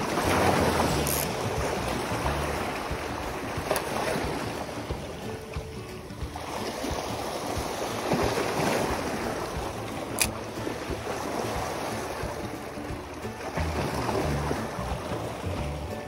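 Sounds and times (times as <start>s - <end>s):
waves splashing over rocks: 0.0s - 16.0s
sharp click: 10.1s - 10.4s.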